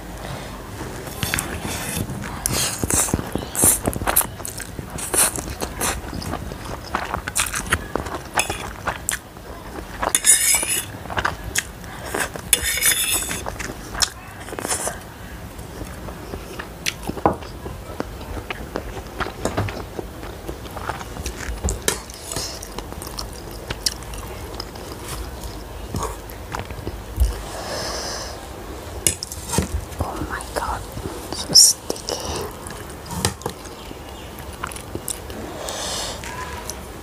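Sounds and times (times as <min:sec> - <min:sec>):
chewing and slurping noodles: 0:00.9 - 0:27.7.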